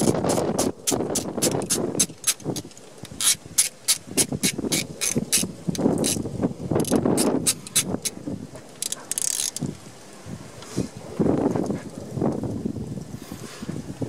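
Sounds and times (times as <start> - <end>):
socket ratchet clicking: 0.0 - 6.2, 6.8 - 8.1, 8.8 - 9.7.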